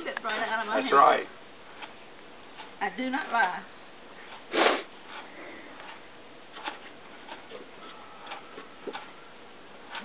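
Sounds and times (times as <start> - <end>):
faint irregular clicks: 1.7 - 2.8, 5.1 - 7.6, 8.2 - 9.2.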